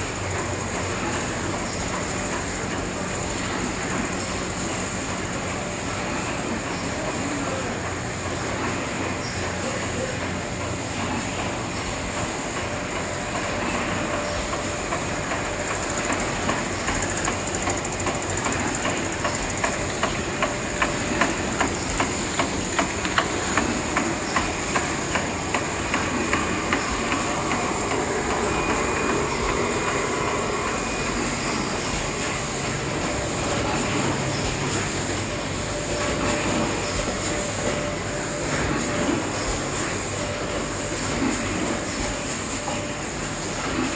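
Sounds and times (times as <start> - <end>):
conveyor machinery clatter: 0.0 - 43.9.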